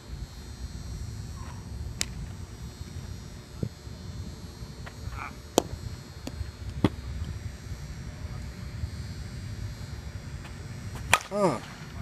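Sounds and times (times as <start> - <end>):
bat striking softball: 5.5 - 7.0, 11.0 - 11.7.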